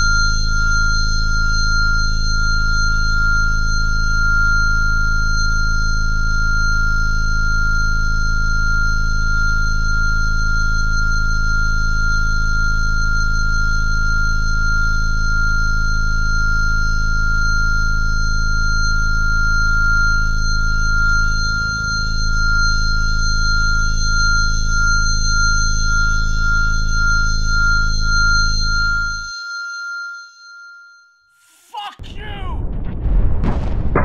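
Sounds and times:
low drone: 31.4s - 34.0s.

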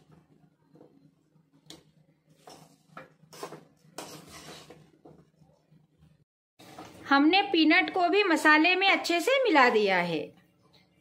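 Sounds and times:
metal spatula scraping metal pan: 2.3s - 5.0s.

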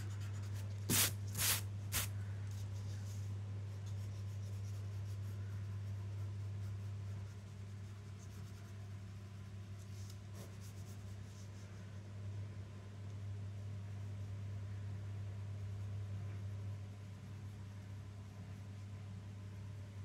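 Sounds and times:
pencil scratching on paper: 3.8s - 11.7s.

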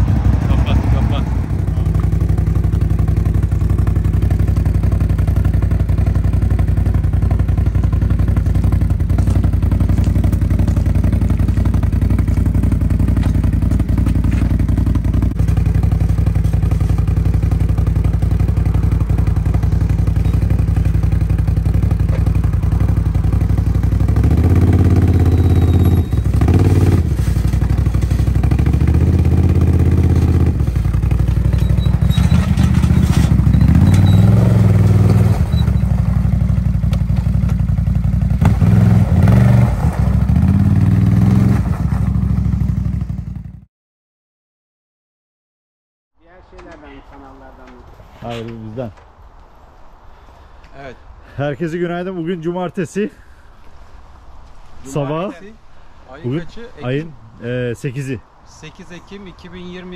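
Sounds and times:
quad bike engine running: 0.0s - 43.6s.

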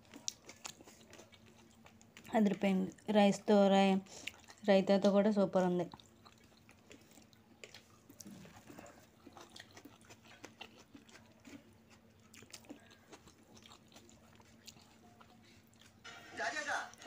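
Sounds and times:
soft wet clicks of eating by hand: 0.0s - 3.1s, 5.9s - 16.0s.

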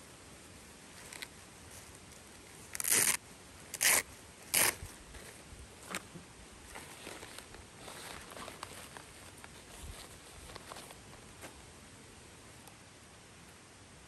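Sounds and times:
zipper pulled: 2.7s - 4.8s
faint rustling: 4.8s - 11.6s.

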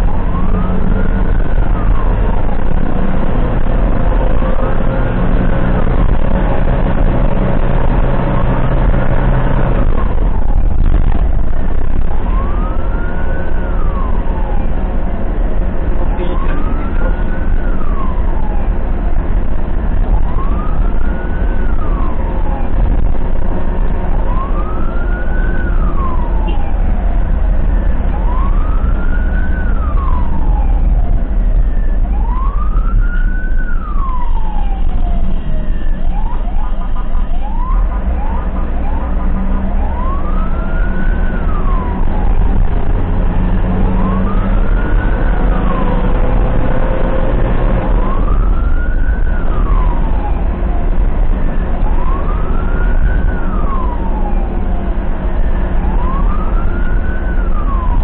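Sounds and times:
ambulance siren wailing: 0.0s - 58.0s
low rumble of moving vehicle: 0.0s - 58.0s
quick rising siren yelps: 32.0s - 42.6s.

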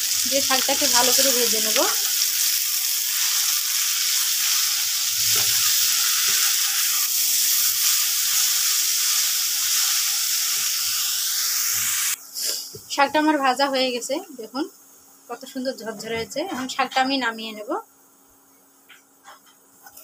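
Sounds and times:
leaves sizzling in hot oil: 0.0s - 12.6s
spatula scraping a pan: 4.2s - 10.1s.

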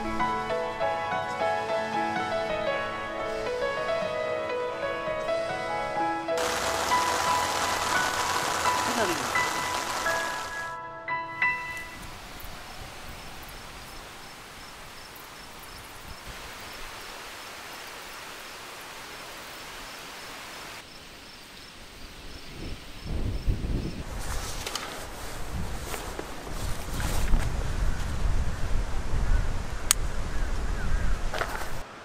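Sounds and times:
insect chirping: 6.4s - 10.6s, 11.9s - 24.0s
outdoor hiss: 6.4s - 10.8s, 11.8s - 26.5s
wind buffeting the microphone: 11.9s - 16.7s, 22.1s - 31.8s.

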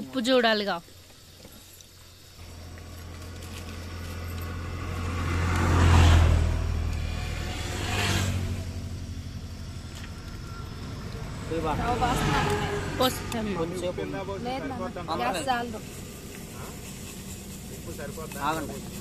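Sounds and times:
vehicle driving past: 2.4s - 19.0s.

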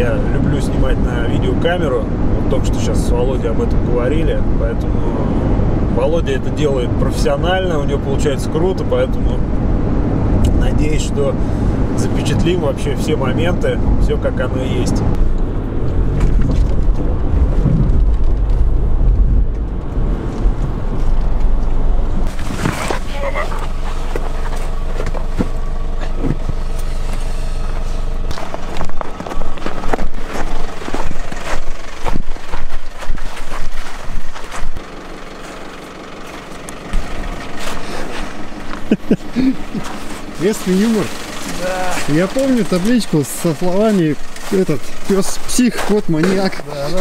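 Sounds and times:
car engine and tyre rumble: 0.0s - 47.0s
wind buffeting microphone: 15.0s - 22.3s.

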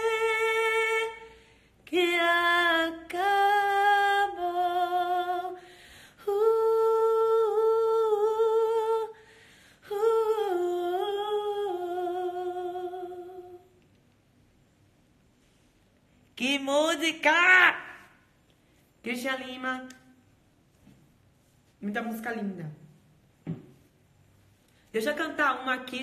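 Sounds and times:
woman singing unaccompanied: 0.0s - 9.2s, 9.8s - 13.8s, 16.4s - 18.1s.

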